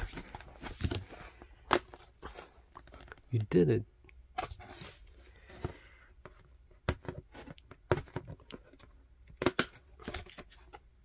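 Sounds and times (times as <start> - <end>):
cardboard pages clicking and scraping: 0.0 - 3.2.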